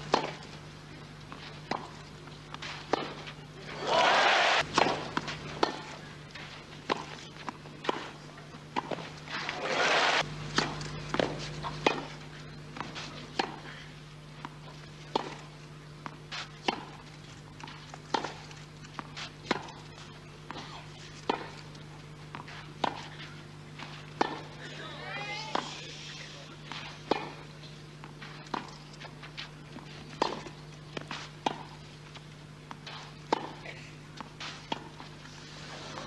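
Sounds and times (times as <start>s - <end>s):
racket striking tennis ball: 0.0s - 0.5s, 1.3s - 12.2s, 12.8s - 13.7s, 14.4s - 17.0s, 17.6s - 21.6s, 22.3s - 24.5s, 26.7s - 31.8s, 32.7s - 33.6s, 34.2s - 35.1s
crowd noise: 3.5s - 4.6s, 9.4s - 10.2s.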